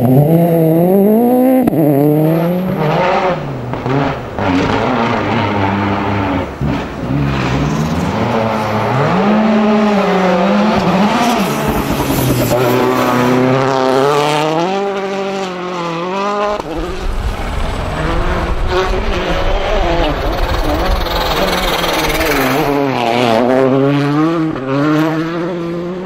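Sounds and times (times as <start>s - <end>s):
rally car engine at full throttle: 0.0s - 26.0s
deep engine rumble approaching: 16.6s - 22.9s.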